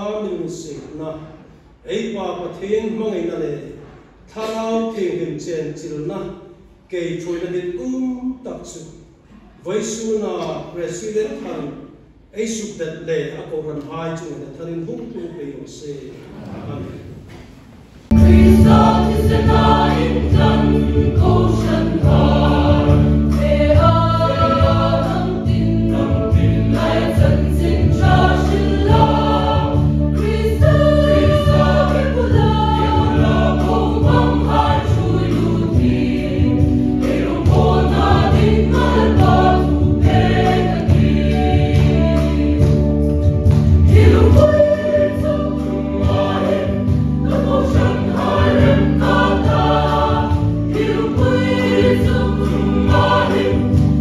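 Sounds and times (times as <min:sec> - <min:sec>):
choir singing gospel music: 0:18.0 - 0:54.0
strong bass accompaniment: 0:18.1 - 0:54.0.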